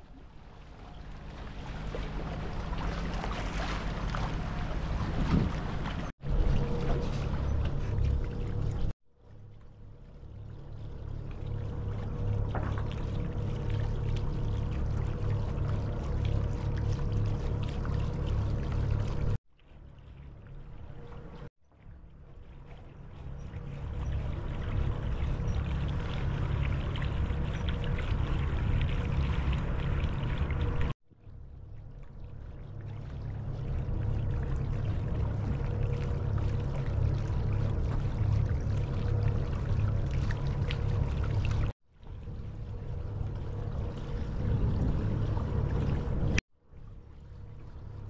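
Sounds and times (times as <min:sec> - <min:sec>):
water rushing past hull: 0:00.0 - 0:08.9, 0:32.2 - 0:48.0
boat engine running: 0:00.0 - 0:19.4, 0:32.3 - 0:46.4.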